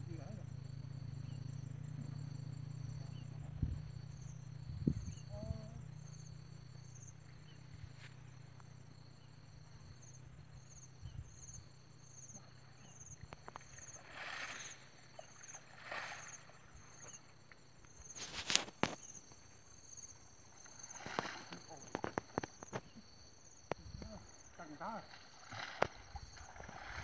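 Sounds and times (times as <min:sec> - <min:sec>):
insects chirping: 0:00.0 - 0:27.0.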